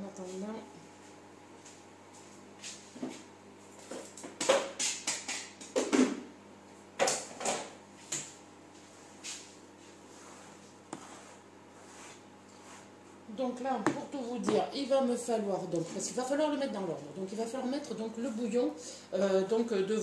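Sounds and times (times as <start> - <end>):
faint steady hum: 5.7 - 20.0.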